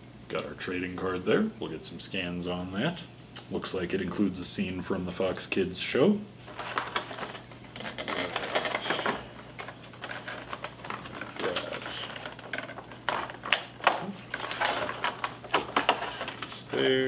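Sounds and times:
plastic packaging crackling: 6.4 - 17.0.

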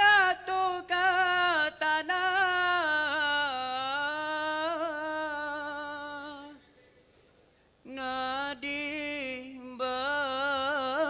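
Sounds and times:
man singing long ornamented note: 7.9 - 11.0.

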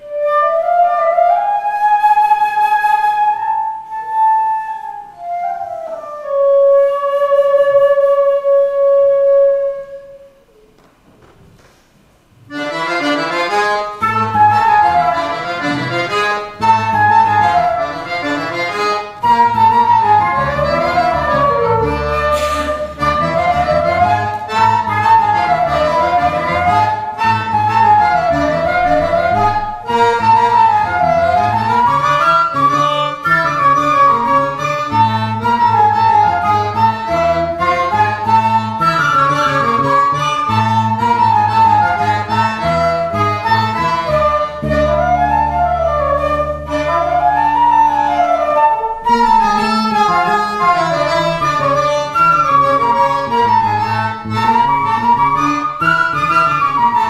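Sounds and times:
flute solo: 0.0 - 10.6, 12.5 - 57.0
accordion: 12.5 - 57.0.

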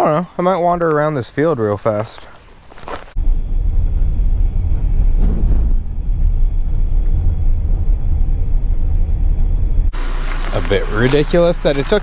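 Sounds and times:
tyres rumbling on dirt road: 2.8 - 12.0
car engine running: 3.2 - 12.0.

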